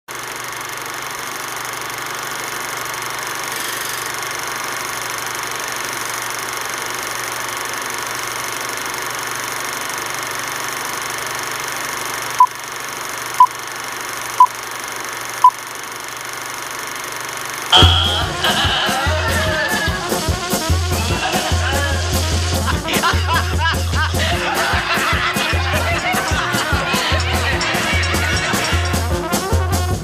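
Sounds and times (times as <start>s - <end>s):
short loud beeps: 17.8s - 19.4s.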